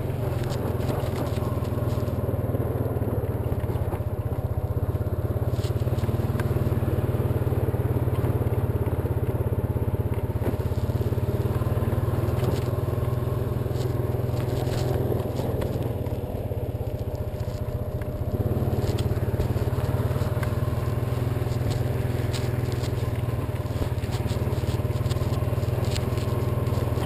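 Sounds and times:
atv engine running: 0:00.0 - 0:27.0
clicks and knocks from brush: 0:16.9 - 0:27.0.

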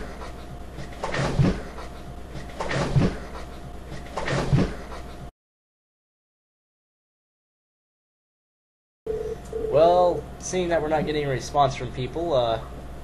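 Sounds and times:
steady low hum: 0:00.0 - 0:05.3, 0:09.1 - 0:13.0.

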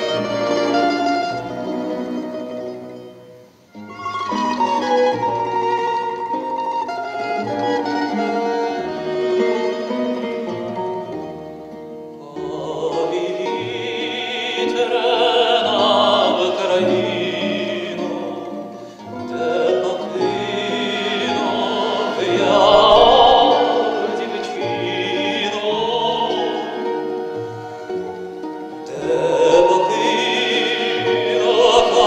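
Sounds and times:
instrumental accompaniment: 0:00.0 - 0:32.0
man singing with vibrato: 0:07.4 - 0:11.0, 0:12.2 - 0:32.0.

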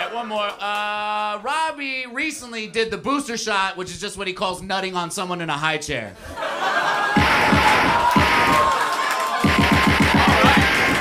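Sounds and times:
deep bass-drum roll: 0:07.2 - 0:08.7, 0:09.4 - 0:11.0.

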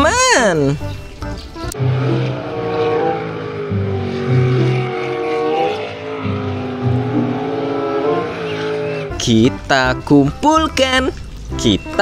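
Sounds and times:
jet boat engine revving: 0:01.2 - 0:10.4.

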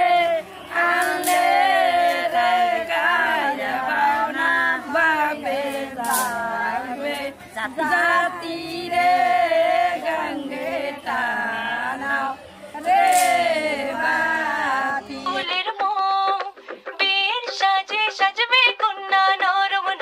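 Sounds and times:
women singing together unaccompanied: 0:00.0 - 0:20.0.

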